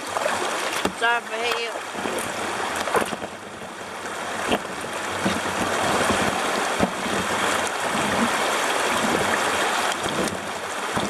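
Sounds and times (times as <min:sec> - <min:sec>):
rushing river water: 0:00.0 - 0:11.0.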